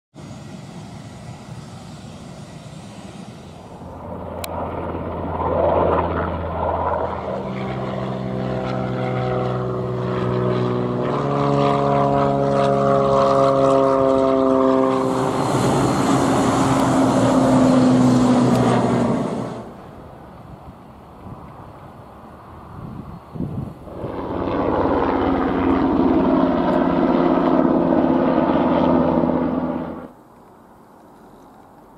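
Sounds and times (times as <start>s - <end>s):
turboprop airliner passing overhead: 0.1s - 30.3s
airliner engine: 0.1s - 30.8s.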